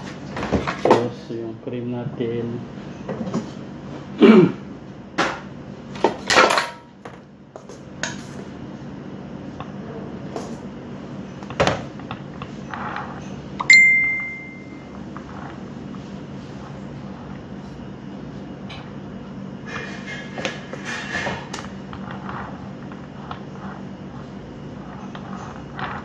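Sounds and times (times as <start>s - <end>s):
metallic ping ringing: 13.6s - 14.8s.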